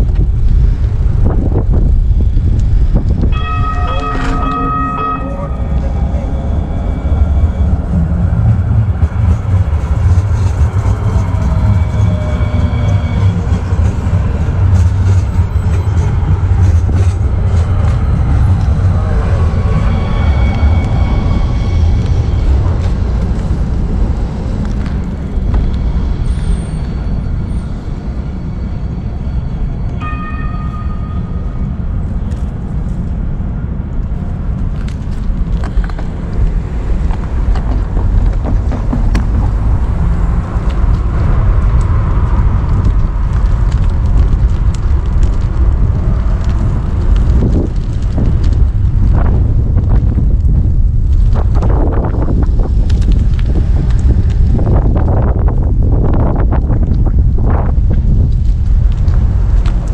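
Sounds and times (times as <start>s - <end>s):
wind buffeting microphone: 0.0s - 29.2s, 30.0s - 59.9s
road and traffic rumble: 0.0s - 59.9s
short pitched tone: 3.3s - 7.8s, 29.8s - 31.8s.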